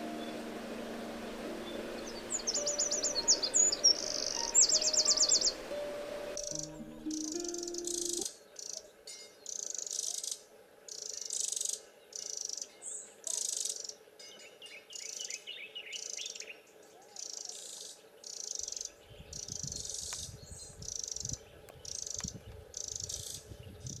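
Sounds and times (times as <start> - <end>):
high-pitched pulsing: 0.0 - 8.2
bird singing trilled notes: 0.0 - 16.6.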